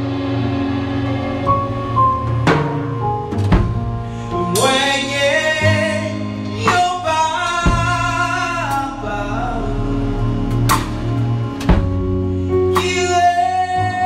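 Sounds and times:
sharp drum hits: 0:00.0 - 0:04.8
gospel music backing: 0:00.0 - 0:14.0
person singing: 0:04.1 - 0:14.0.

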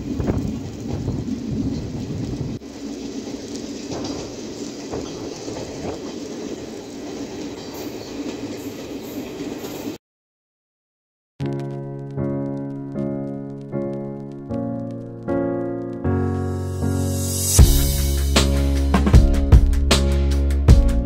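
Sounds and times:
train rumbling and rattling: 0:00.0 - 0:10.0, 0:17.0 - 0:21.0.

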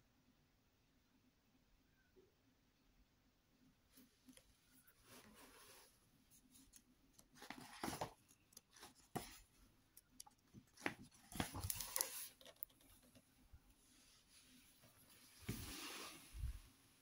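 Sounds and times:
book pages turning: 0:05.0 - 0:09.6, 0:10.2 - 0:13.2.

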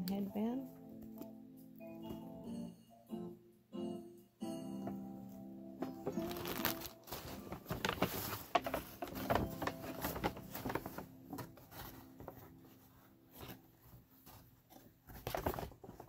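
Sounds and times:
paper bag rustling and crinkling: 0:05.8 - 0:16.0.

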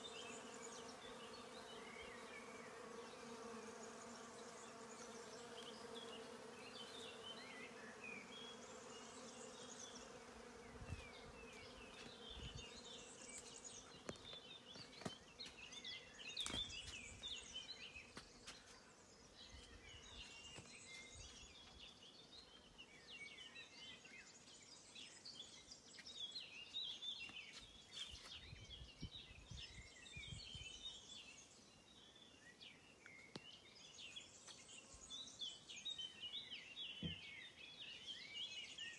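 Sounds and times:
flying insect buzzing: 0:00.0 - 0:18.2
small birds chirping: 0:00.0 - 0:38.9.

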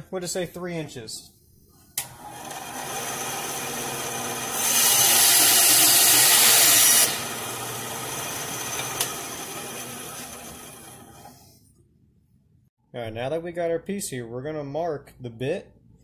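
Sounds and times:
bandsaw cutting wood: 0:02.0 - 0:11.5
bandsaw running: 0:02.0 - 0:11.5.

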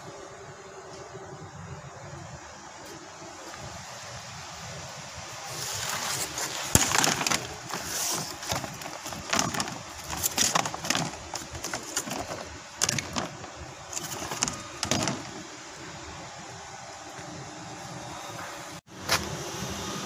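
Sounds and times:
wood veneer rustling and crackling: 0:05.4 - 0:15.5.

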